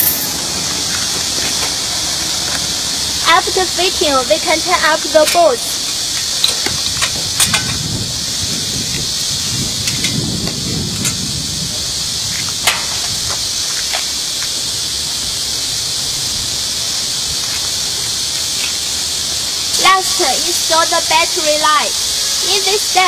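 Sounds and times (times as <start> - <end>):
hand tools clicking: 0.0 - 1.7, 5.2 - 7.8
high-pitched hiss: 0.0 - 23.0.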